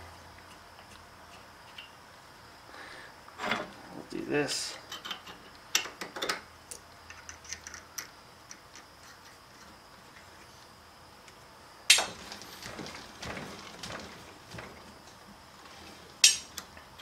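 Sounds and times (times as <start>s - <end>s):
steel parts clicking and clinking: 16.2s - 17.0s.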